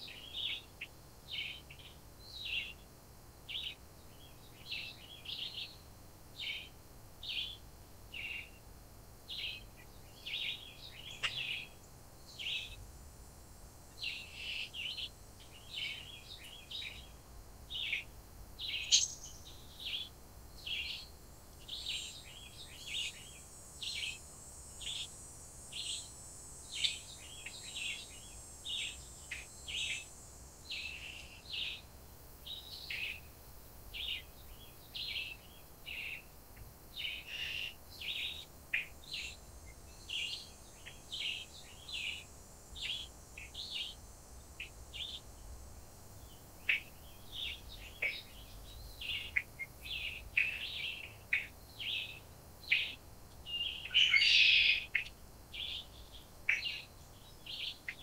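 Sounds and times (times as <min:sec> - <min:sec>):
birds chirping: 0:09.3 - 0:12.8, 0:14.0 - 0:24.2, 0:24.8 - 0:25.2, 0:26.7 - 0:31.8, 0:37.0 - 0:44.0, 0:46.2 - 0:58.0.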